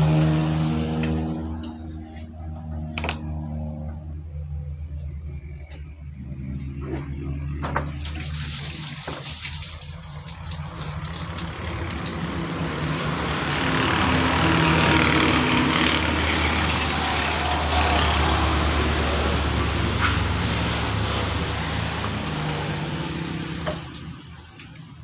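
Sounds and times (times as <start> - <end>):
vehicle engine running: 0.0 - 8.2, 10.0 - 25.0
rushing noise: 13.5 - 23.8.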